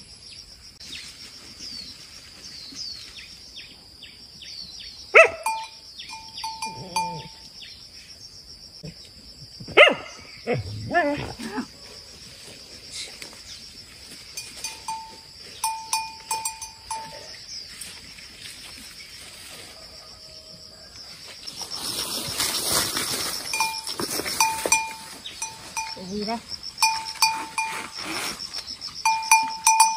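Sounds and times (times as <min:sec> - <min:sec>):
high insect drone: 0:00.0 - 0:29.9
rustling of grass and leaves: 0:00.7 - 0:04.0, 0:11.4 - 0:29.9
small bell clinking: 0:05.4 - 0:07.4, 0:14.4 - 0:17.3, 0:23.6 - 0:27.8, 0:29.0 - 0:29.9.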